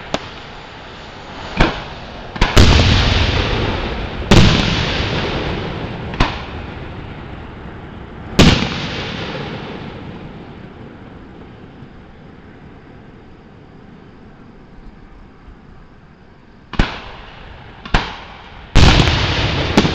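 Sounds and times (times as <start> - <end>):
fireworks bursting: 0.0 - 12.5, 16.7 - 19.9
echoing rumble: 0.0 - 13.8.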